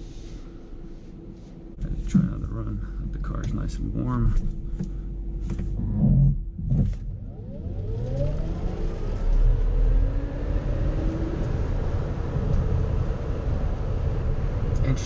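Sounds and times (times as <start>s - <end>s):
road noise: 6.8s - 15.0s
electric motor whine: 7.0s - 12.9s.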